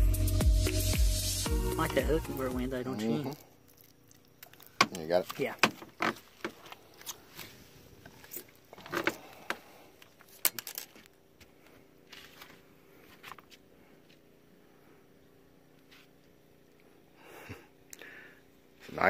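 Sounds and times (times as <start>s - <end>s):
faint steady hum: 1.4s - 19.0s
handling clicks and rattles: 10.1s - 11.1s.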